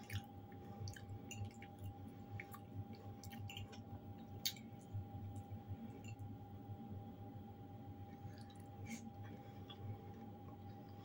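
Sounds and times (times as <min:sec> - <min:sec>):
person chewing food: 0:00.0 - 0:04.7, 0:08.2 - 0:11.0
faint steady hum: 0:00.0 - 0:11.0.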